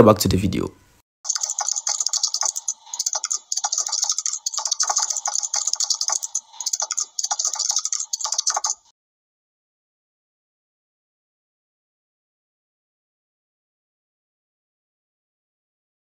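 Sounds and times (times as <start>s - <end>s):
keyboard typing clicks: 1.3s - 8.9s.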